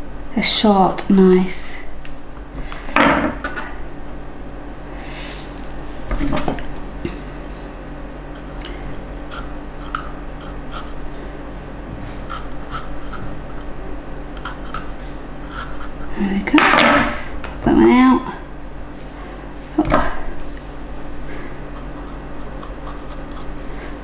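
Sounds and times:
knife cutting pepper: 8.3 - 11.0, 12.2 - 13.7, 14.4 - 16.1, 21.7 - 23.6.

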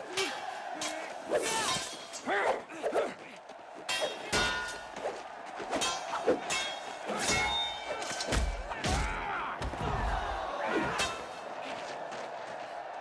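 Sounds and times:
fighters grunting: 0.0 - 12.1
metal sword blades clashing: 0.2 - 2.6, 3.9 - 5.0, 5.7 - 9.1.

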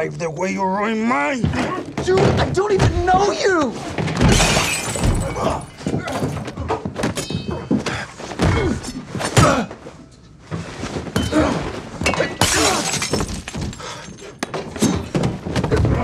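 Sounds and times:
glass shattering: 4.2 - 6.4, 12.1 - 14.2.

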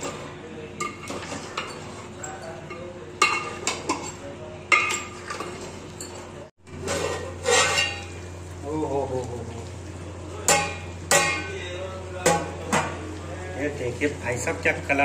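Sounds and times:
metal ladle scraping a pot: 0.0 - 2.2, 6.8 - 8.2.

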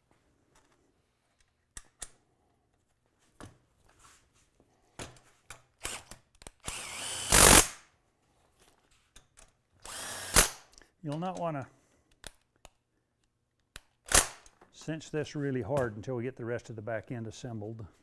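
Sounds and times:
cordless drill driving a bolt: 5.8 - 7.8, 9.8 - 10.7.

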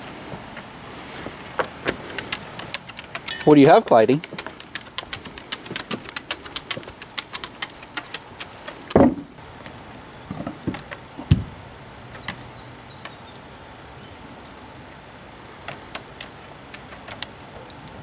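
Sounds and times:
dog claws clicking on wood: 1.6 - 9.2, 15.6 - 18.0
light knocks on boards: 8.9 - 9.3
bone thumping on boards: 8.9 - 9.4.

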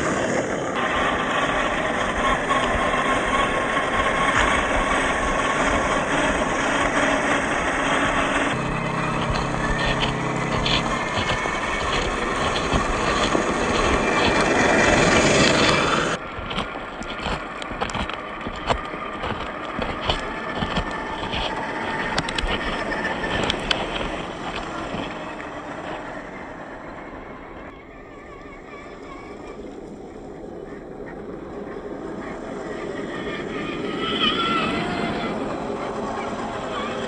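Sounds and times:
tyres crunching on gravel: 0.0 - 27.7
electric motors whining: 0.0 - 37.0
stones clicking: 9.0 - 26.2.

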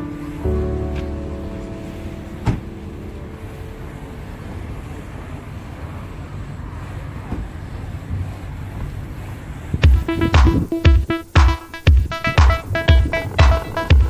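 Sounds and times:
background music: 0.0 - 5.0, 9.8 - 14.0
low outdoor rumble: 0.0 - 14.0.

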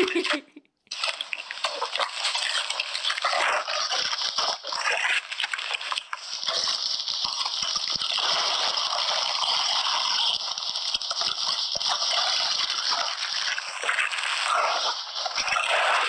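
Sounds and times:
gift wrapping crinkling and tearing: 0.0 - 10.4.

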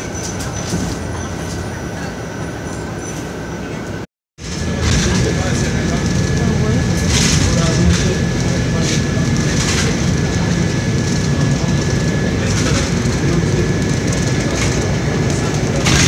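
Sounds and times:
bus body rattling: 0.0 - 16.0
bus engine and road rumble: 0.0 - 16.0.

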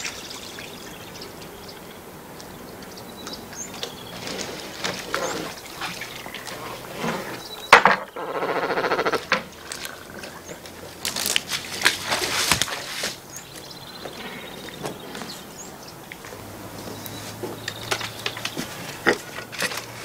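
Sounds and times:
person wading with splashes: 0.0 - 7.6, 8.9 - 20.0
cormorant rattling croak: 2.9 - 11.0.

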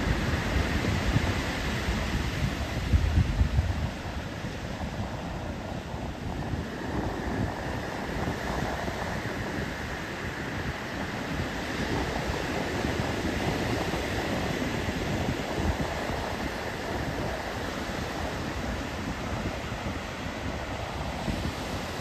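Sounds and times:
waves breaking on sandy beach: 0.0 - 22.0
wind buffeting microphone: 0.0 - 22.0.

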